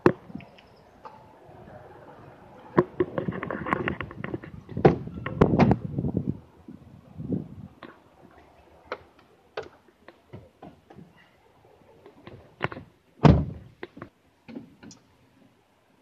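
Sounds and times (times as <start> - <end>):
heavy thunk: 13.2 - 13.7.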